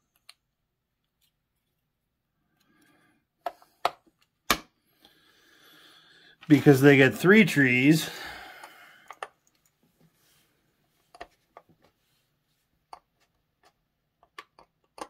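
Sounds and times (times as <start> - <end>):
plastic toy bricks clicking: 14.2 - 15.0.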